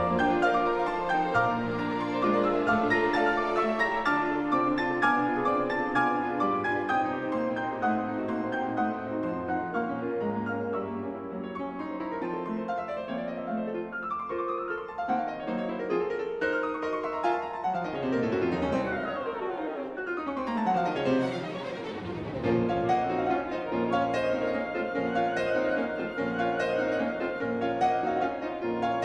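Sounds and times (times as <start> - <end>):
classical piano piece: 0.0 - 29.0.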